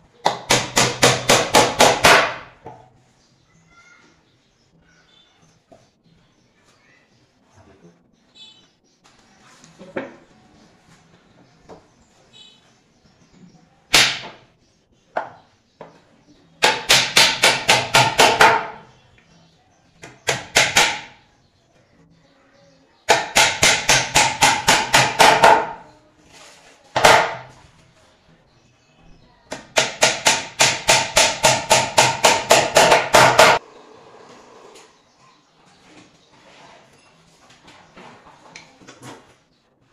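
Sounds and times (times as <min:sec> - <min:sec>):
hammer driving nails into wood: 0:00.2 - 0:02.5, 0:16.6 - 0:18.8, 0:20.0 - 0:21.2, 0:23.1 - 0:25.8, 0:29.6 - 0:33.6.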